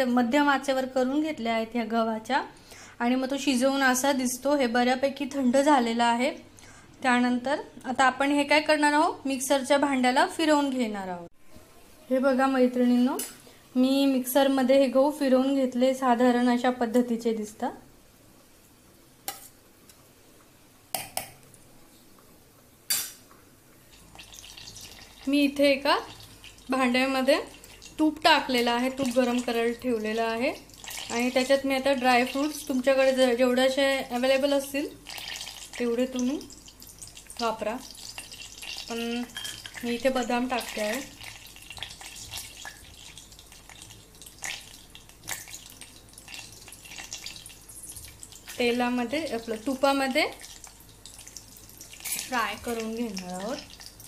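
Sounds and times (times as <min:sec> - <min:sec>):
nuts sizzling in hot fat: 0:23.9 - 0:54.0.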